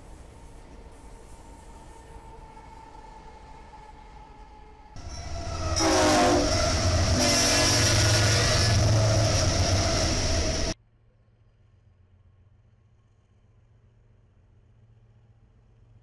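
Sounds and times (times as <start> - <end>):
freight train rumbling past: 0.0 - 10.8
train horn blasts: 5.0 - 10.8.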